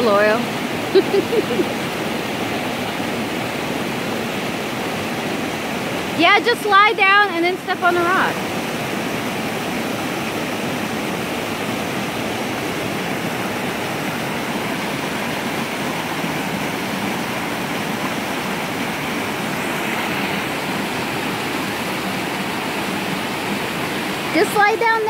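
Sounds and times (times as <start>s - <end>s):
small waterfall rushing water: 0.0s - 25.0s.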